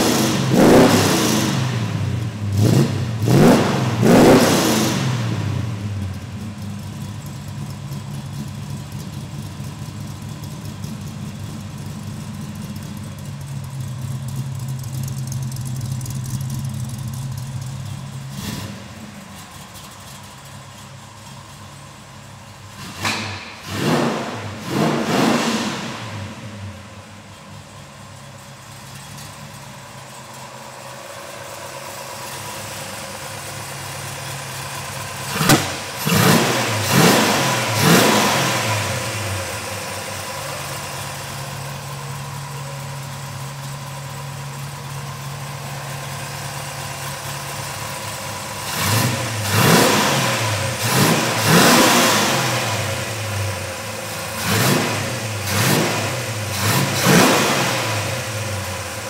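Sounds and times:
engine revving in sharp blips: 0:00.0 - 0:06.1, 0:22.7 - 0:26.8, 0:35.2 - 0:40.2, 0:48.5 - 0:59.0
car engine idling: 0:00.0 - 0:59.0.

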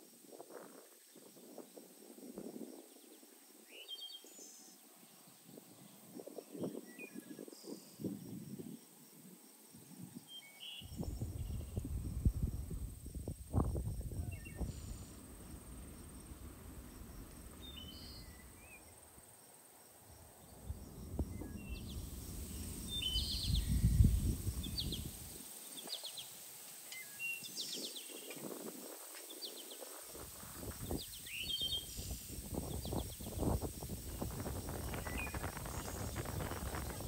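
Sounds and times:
wind rumbling on microphone: 0:00.0 - 0:26.2, 0:27.0 - 0:37.0
small birds chirping: 0:09.8 - 0:37.0.

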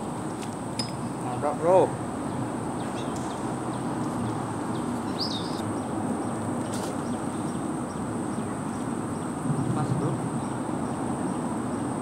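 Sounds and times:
bird chirp: 0:02.2 - 0:11.9.

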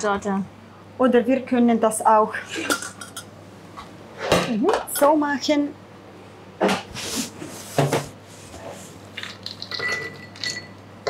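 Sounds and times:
spoon clinking against bowl: 0:09.7 - 0:10.8.

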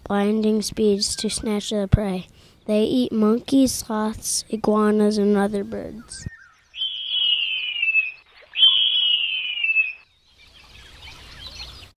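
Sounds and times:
faint forest chirping: 0:00.4 - 0:12.0
eagle wailing screams: 0:06.8 - 0:10.0.

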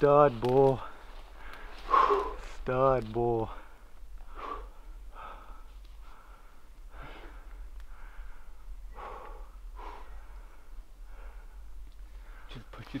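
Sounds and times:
man breathing hard: 0:00.9 - 0:02.6, 0:03.5 - 0:12.7.

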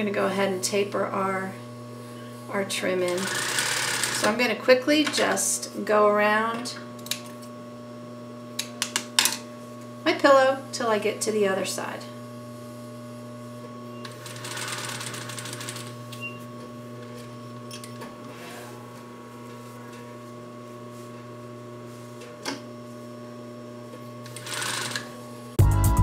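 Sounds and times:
sewing machine motor humming: 0:02.9 - 0:04.4, 0:14.0 - 0:16.4, 0:24.2 - 0:25.2
sewing machine stitching: 0:03.1 - 0:04.3, 0:14.0 - 0:15.9, 0:24.3 - 0:25.1.

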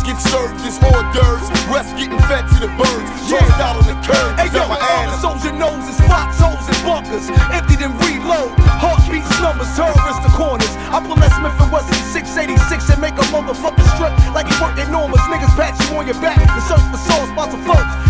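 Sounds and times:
man rapping: 0:00.0 - 0:18.0
heavy kick drums: 0:00.8 - 0:01.4, 0:02.2 - 0:02.8, 0:03.4 - 0:04.3, 0:06.0 - 0:06.6, 0:07.4 - 0:08.0, 0:08.6 - 0:09.3, 0:09.9 - 0:10.6, 0:11.2 - 0:11.8, 0:13.8 - 0:14.5, 0:15.2 - 0:15.8, 0:16.4 - 0:17.0.

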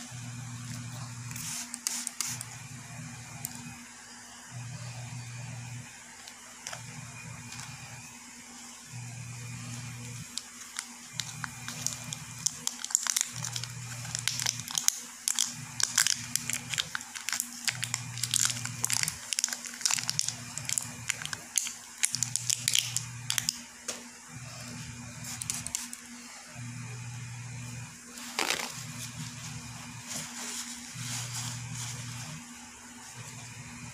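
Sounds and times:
paper label crinkling and tearing: 0:01.3 - 0:02.5, 0:10.2 - 0:23.6, 0:25.2 - 0:26.0, 0:28.2 - 0:29.2.

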